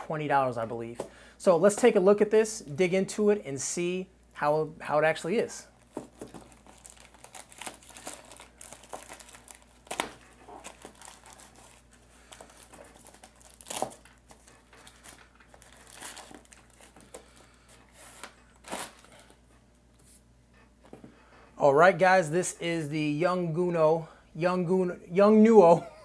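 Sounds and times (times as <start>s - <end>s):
wrapping crinkling: 5.7s - 19.5s
wrapping ripping: 5.8s - 19.4s.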